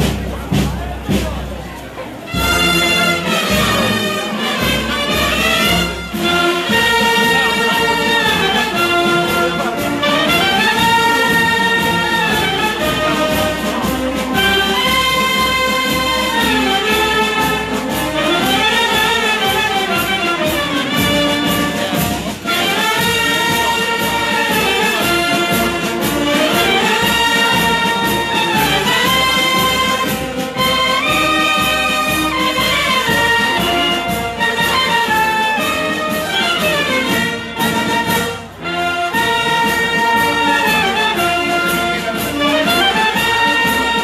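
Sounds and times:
marching wind band playing: 0:00.0 - 0:44.0.

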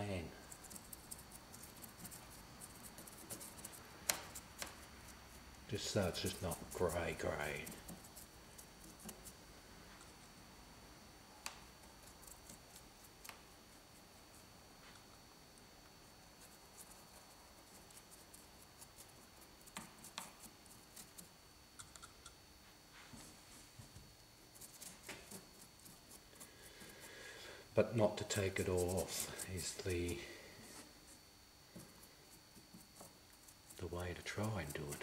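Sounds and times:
paintbrush tapping and rubbing on rock: 0:00.4 - 0:09.4, 0:16.4 - 0:22.1, 0:28.2 - 0:30.2, 0:31.7 - 0:35.0.

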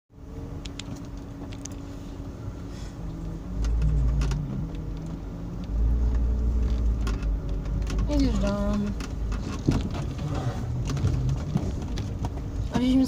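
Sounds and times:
deep rumble: 0:00.1 - 0:13.0
engine humming: 0:00.1 - 0:13.0
knocks and rattles: 0:06.6 - 0:12.6.

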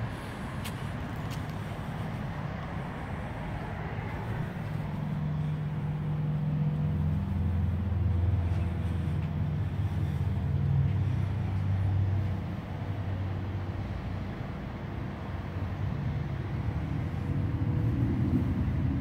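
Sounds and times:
vehicle engine rumble: 0:00.0 - 0:19.0.

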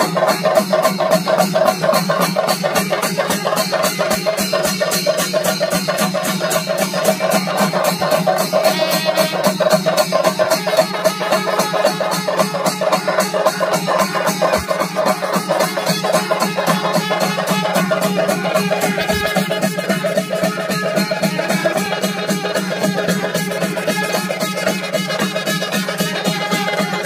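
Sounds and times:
drums beaten with sticks: 0:00.0 - 0:27.0
horns sounding held notes: 0:08.6 - 0:09.8.

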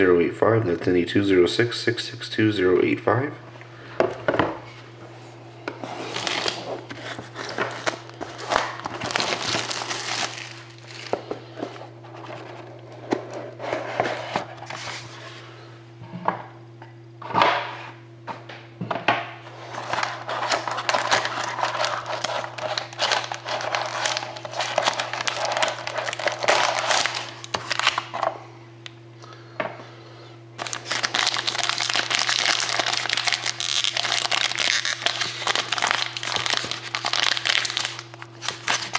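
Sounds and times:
foil pack crinkling: 0:05.8 - 0:11.3, 0:19.6 - 0:28.2, 0:30.6 - 0:38.9
cardboard packaging rustling: 0:05.8 - 0:15.2, 0:19.6 - 0:28.2, 0:30.6 - 0:38.9.

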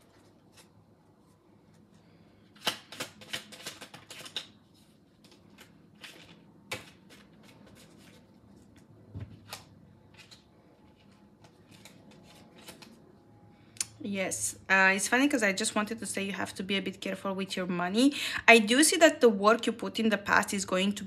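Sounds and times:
cards shuffling: 0:00.0 - 0:13.1.

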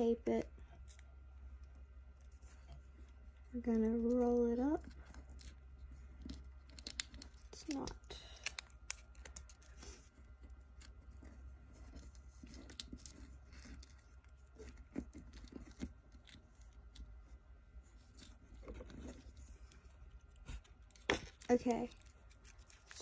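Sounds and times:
paper crinkling between fingers: 0:04.9 - 0:17.1, 0:17.8 - 0:23.0.

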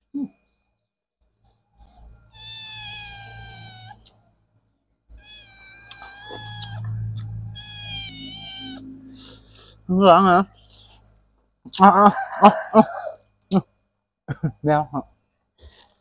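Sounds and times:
cat meowing: 0:02.3 - 0:04.2, 0:05.1 - 0:09.2.

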